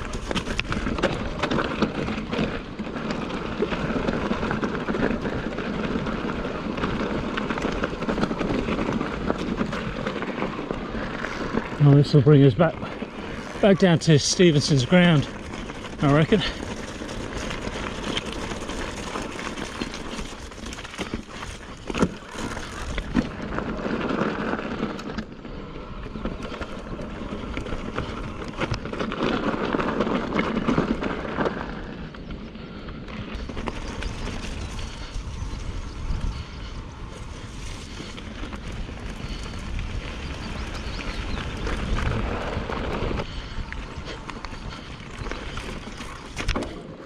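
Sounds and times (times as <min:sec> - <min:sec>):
tyres crunching over stony ground: 0:00.0 - 0:47.0
wind rumble on microphone: 0:14.5 - 0:47.0.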